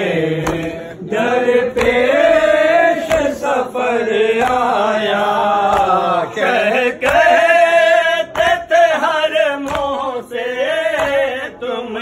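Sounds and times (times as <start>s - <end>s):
men chanting in unison: 0.0s - 12.0s
dull beat: 0.4s - 10.2s.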